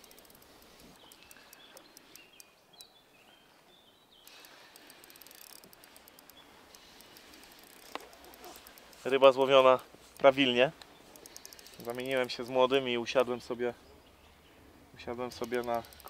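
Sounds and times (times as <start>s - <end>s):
light ticks: 0.0s - 2.9s, 4.2s - 13.4s, 15.2s - 16.0s
faint bird calls: 0.0s - 9.1s.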